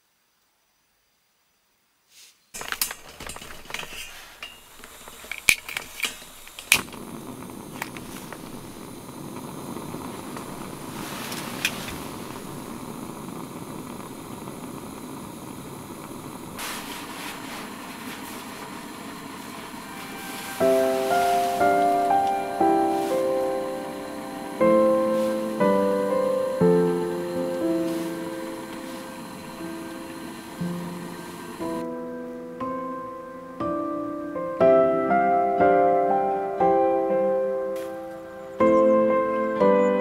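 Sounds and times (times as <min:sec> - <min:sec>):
gas burner hissing: 0:02.6 - 0:32.0.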